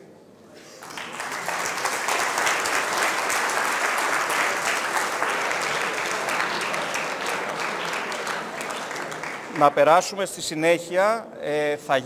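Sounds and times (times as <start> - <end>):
audience applauding: 0.8 - 10.0.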